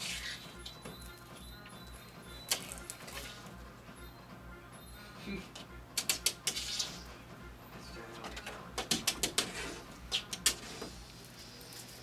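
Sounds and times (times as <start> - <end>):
cat scratching at a door: 8.8 - 10.9.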